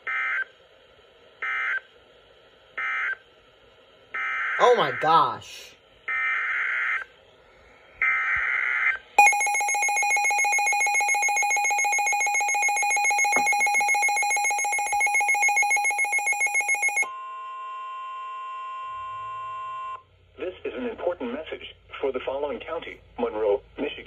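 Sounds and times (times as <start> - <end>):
electronic alarm pulsing rapidly: 9.2 - 17.1
steady alert tone: 9.2 - 17.1.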